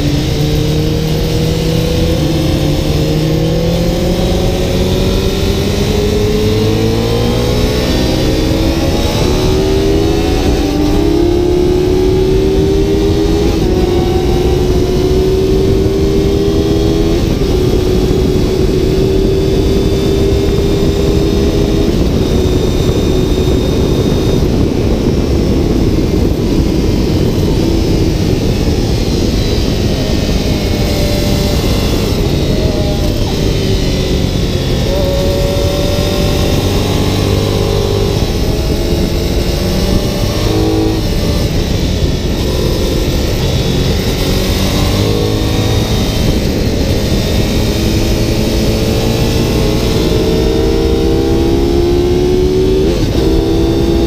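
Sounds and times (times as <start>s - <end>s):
motorcycle engine accelerating: 0.0s - 54.0s
wind rush on microphone: 0.0s - 54.0s.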